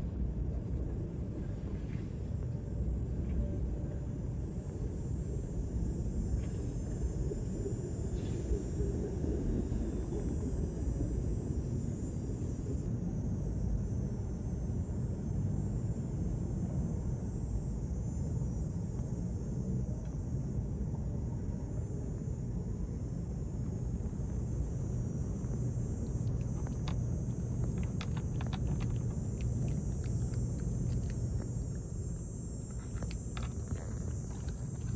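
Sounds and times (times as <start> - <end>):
cat crunching a dry treat: 26.0 - 34.9.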